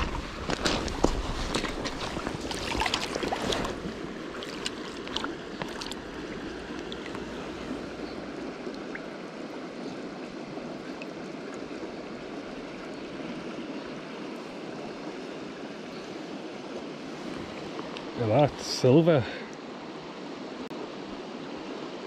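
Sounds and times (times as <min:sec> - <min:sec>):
footsteps on gravel: 0:00.0 - 0:06.0
river rushing: 0:00.0 - 0:22.0.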